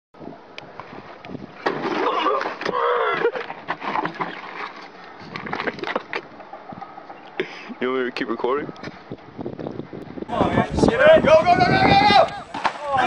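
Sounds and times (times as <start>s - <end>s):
man calling out loudly: 10.3s - 13.0s.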